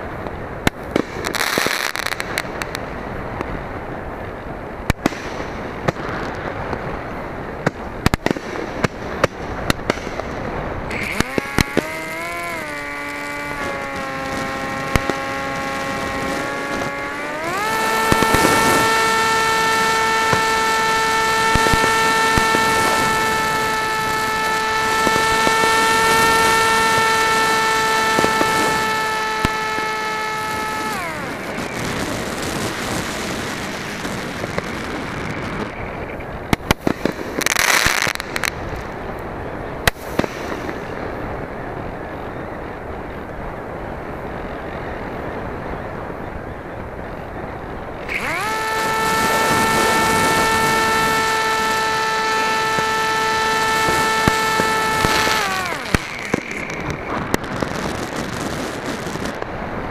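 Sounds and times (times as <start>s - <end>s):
fireworks crackling and popping: 0.0s - 59.9s
wind noise: 0.0s - 59.9s
motor and propeller hum: 10.5s - 36.2s, 47.9s - 59.4s.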